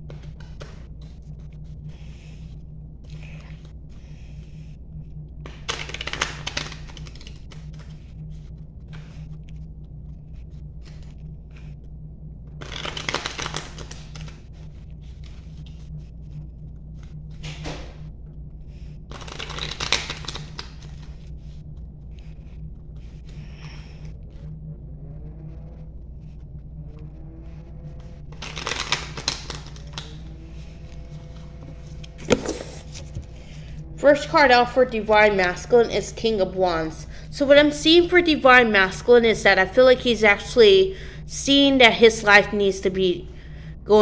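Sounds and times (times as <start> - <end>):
cards being shuffled: 0.0 - 4.4, 5.4 - 11.8, 12.5 - 17.7, 19.1 - 24.4, 28.0 - 33.7
low hum: 0.0 - 44.0.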